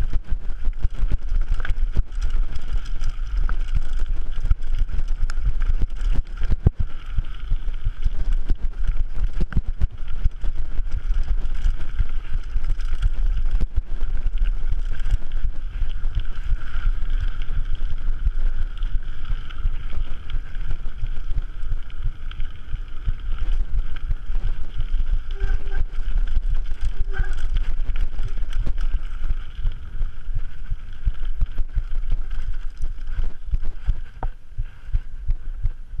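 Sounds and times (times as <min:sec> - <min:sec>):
mountain bike rattling over rocks: 0:00.0 - 0:35.1
bike rolling on tarmac: 0:00.0 - 0:36.0.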